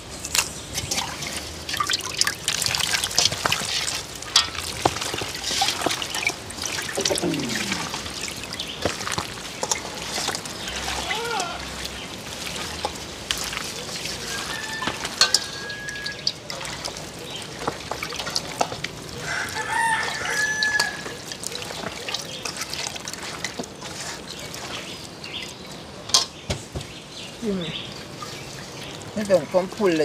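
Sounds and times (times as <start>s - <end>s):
hands handling raw meat: 0.2s - 30.0s
rooster crowing: 14.2s - 16.3s, 19.2s - 21.3s.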